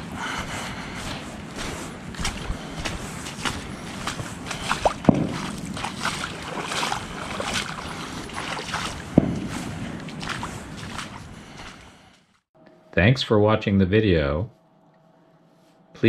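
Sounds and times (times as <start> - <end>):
footsteps squelching through mud: 0.0 - 12.3
heavy thumps: 9.1 - 9.8.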